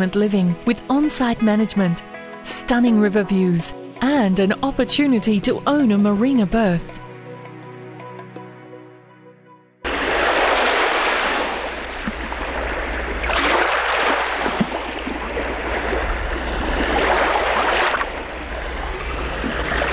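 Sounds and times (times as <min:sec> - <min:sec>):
steady low hum: 0:18.0 - 0:19.9.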